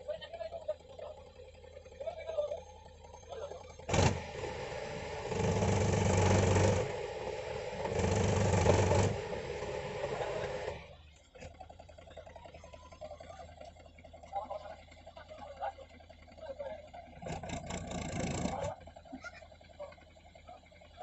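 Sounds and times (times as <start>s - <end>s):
tractor diesel engine revving: 0.0s - 21.0s.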